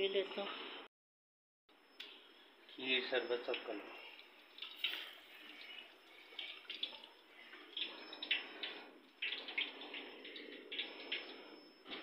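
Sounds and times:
oil crackling and popping: 3.6 - 12.0
oil sizzling in a wok: 4.2 - 12.0.

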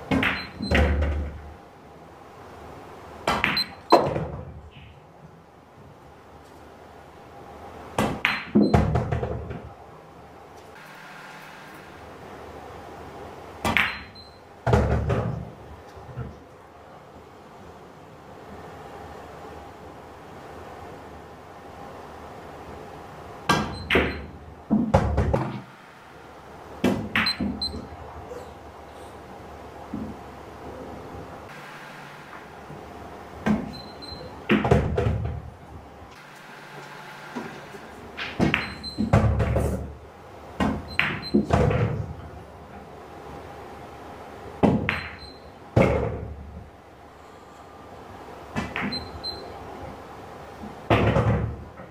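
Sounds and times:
pool balls clicking: 0.0 - 1.6, 3.2 - 5.0, 7.9 - 9.8, 13.5 - 16.5, 23.4 - 43.0, 44.4 - 46.8, 48.4 - 51.9
billiard balls clacking: 8.0 - 9.8, 13.6 - 16.5, 36.9 - 42.9, 44.6 - 46.7.

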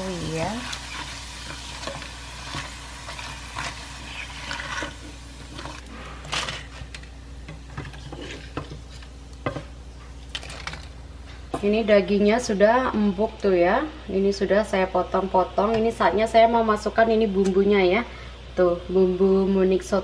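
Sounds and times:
crackers sizzling in hot oil: 0.0 - 9.6.

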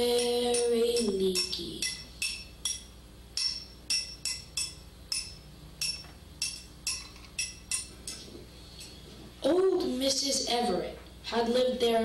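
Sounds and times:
glassy dripping plinks: 1.0 - 7.9.

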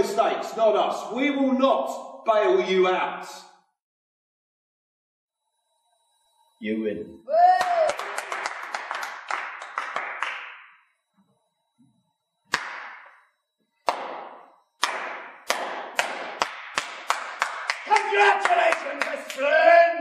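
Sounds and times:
person shouting: 7.3 - 8.0, 17.8 - 20.0
crowd clapping: 7.6 - 10.8, 12.5 - 13.0, 13.9 - 19.6
slow loud handclaps: 7.6 - 10.8, 12.5 - 13.2, 13.8 - 19.4.

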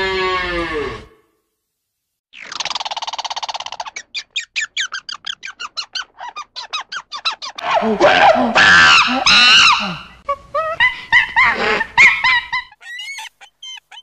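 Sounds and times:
harsh animal calls: 0.0 - 1.2, 2.4 - 10.3, 11.4 - 14.0
squirrel chattering: 2.4 - 7.8, 12.8 - 14.0.

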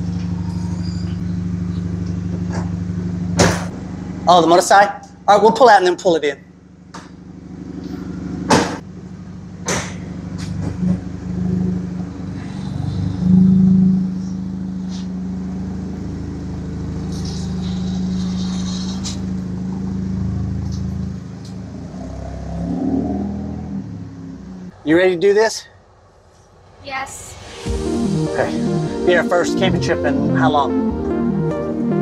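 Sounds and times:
car doors shutting: 0.0 - 3.9, 7.8 - 8.8, 9.6 - 11.2
car engine driving away: 0.0 - 25.1.

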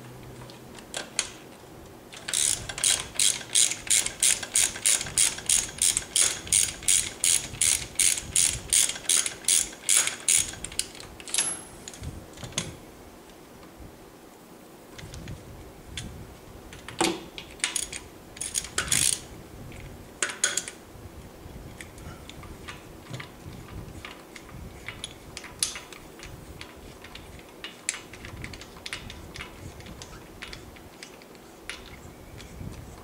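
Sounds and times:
metal tools clinking: 11.3 - 11.7.

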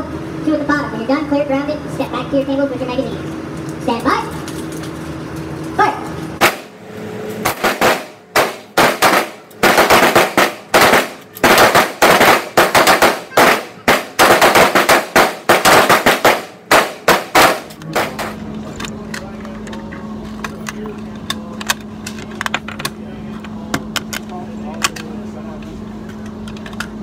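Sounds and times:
rifles firing: 6.4 - 6.8, 7.4 - 18.4.

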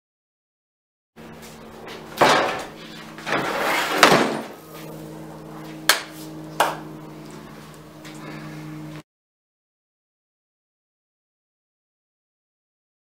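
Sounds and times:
steady low hum: 1.2 - 9.0
heavy wooden door slam: 2.2 - 2.7, 4.0 - 4.6
rushing scrape: 3.2 - 4.5.

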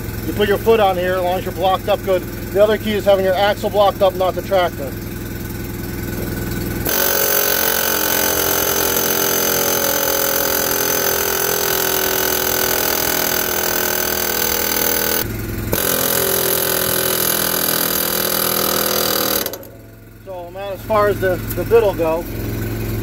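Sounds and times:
pneumatic air hammer hammering steel: 6.0 - 21.6.

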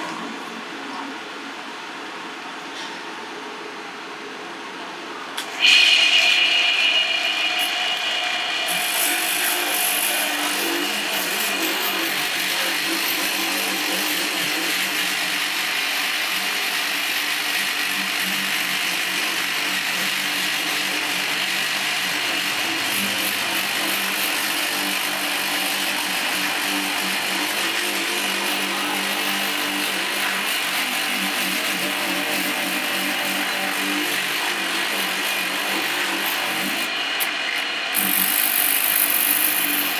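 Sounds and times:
tyre buffer grinding rubber: 8.7 - 15.4, 20.5 - 39.9.

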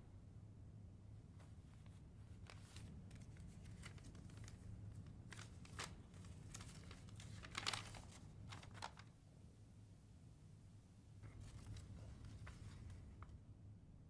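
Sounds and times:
paper rustling and crinkling: 1.4 - 9.1, 11.2 - 13.4.

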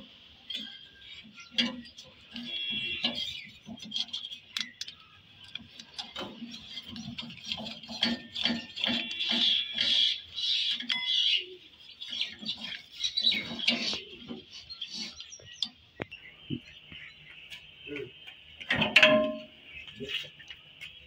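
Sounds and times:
small birds chirping and squawking: 0.0 - 18.7, 19.5 - 21.0.

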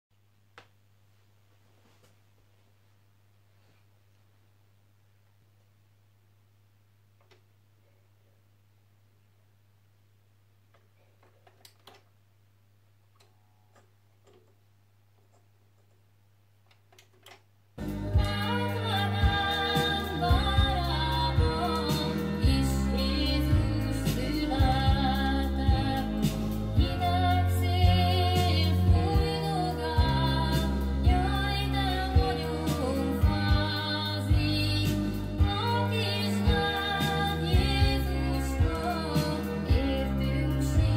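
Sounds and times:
person singing over bass: 17.8 - 40.9.

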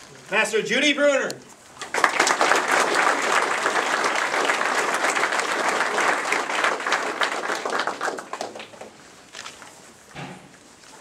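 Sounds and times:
audience applauding: 1.8 - 9.0.

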